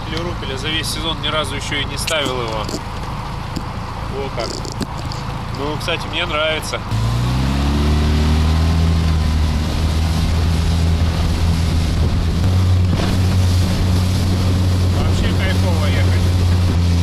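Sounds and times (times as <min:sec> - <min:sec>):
outboard motor running: 0:00.0 - 0:17.0
water rushing along hull: 0:00.0 - 0:17.0
wind buffeting microphone: 0:08.1 - 0:17.0.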